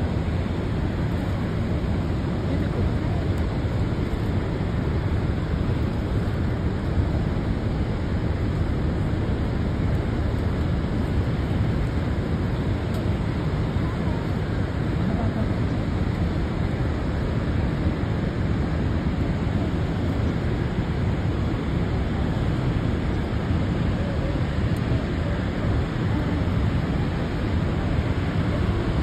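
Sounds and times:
waterfall roaring: 0:00.0 - 0:29.0.

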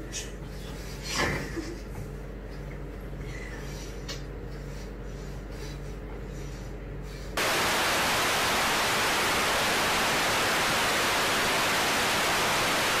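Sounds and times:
television static hiss: 0:07.4 - 0:13.0.

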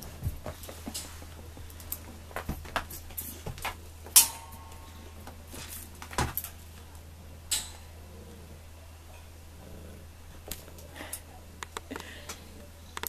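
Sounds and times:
loud ringing clank: 0:04.2 - 0:05.2.

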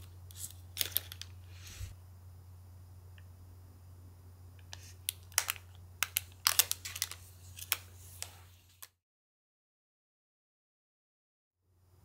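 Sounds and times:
plastic bag crinkling: 0:00.0 - 0:01.4, 0:05.0 - 0:08.9
low steady hum: 0:00.0 - 0:08.9.

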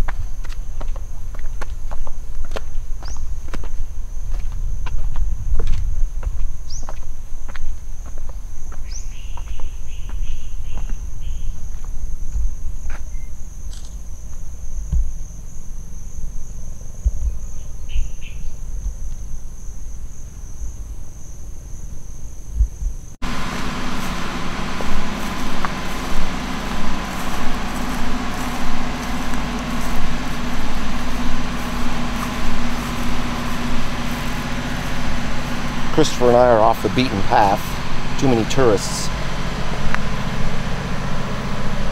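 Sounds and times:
low wind rumble: 0:00.0 - 0:41.9
pulsing engine-like hum: 0:23.2 - 0:41.9.

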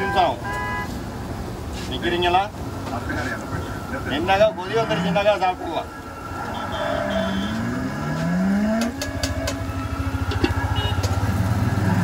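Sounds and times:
engine revving: 0:06.4 - 0:12.0.

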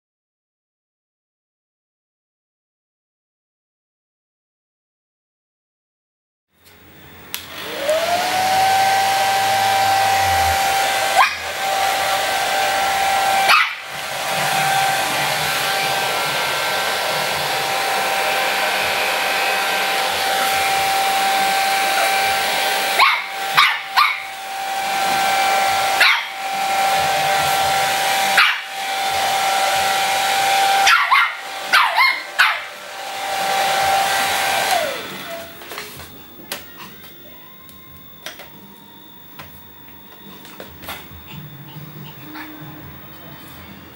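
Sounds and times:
hair dryer running: 0:07.3 - 0:36.1
puppy barking: 0:11.0 - 0:11.6, 0:13.3 - 0:14.0, 0:21.8 - 0:24.4, 0:25.1 - 0:26.4, 0:28.3 - 0:28.8, 0:30.8 - 0:32.8.

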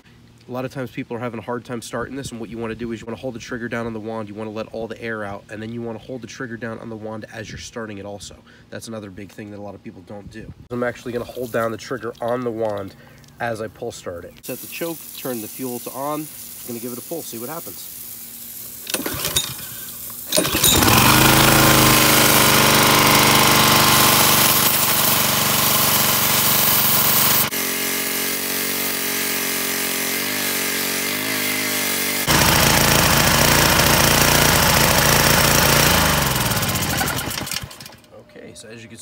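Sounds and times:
pressure washer engine running: 0:14.4 - 0:38.1.

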